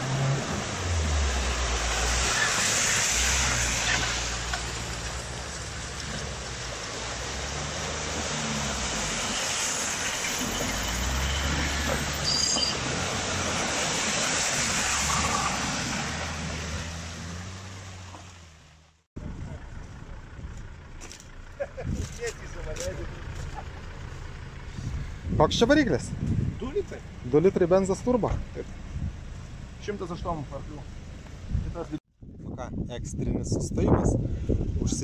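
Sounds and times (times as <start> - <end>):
tyres churning through mud: 0.0 - 25.0
car engines revving: 0.0 - 31.5.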